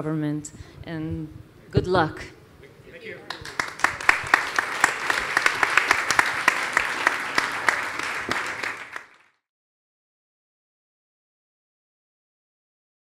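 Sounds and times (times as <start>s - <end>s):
audience applauding: 3.2s - 9.4s.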